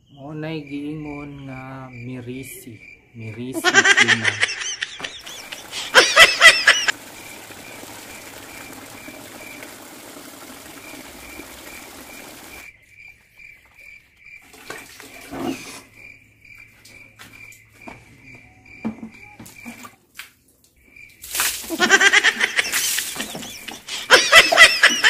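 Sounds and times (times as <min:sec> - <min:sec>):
cricket chirping: 0:00.0 - 0:20.0, 0:20.7 - 0:25.0
tap water running into bucket: 0:03.8 - 0:12.7, 0:21.2 - 0:25.0
bucket knocks and handling: 0:18.7 - 0:20.0.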